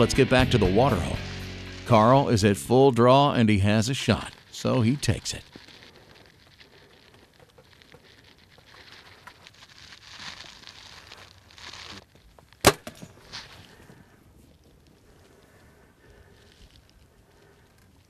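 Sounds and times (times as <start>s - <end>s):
soft rustling hiss: 3.6s - 18.0s.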